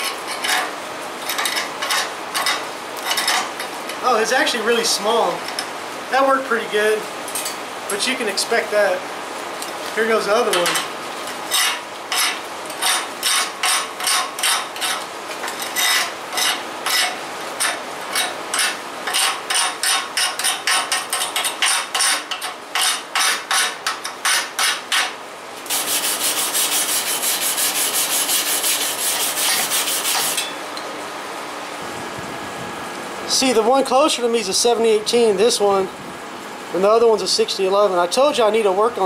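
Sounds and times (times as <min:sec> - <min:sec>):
scrubbing on steel: 0:25.7 - 0:30.5.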